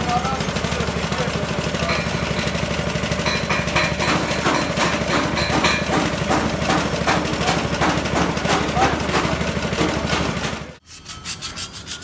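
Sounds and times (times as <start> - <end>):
engine running with low throb: 0.0 - 10.8
sharp knocks: 3.2 - 10.5.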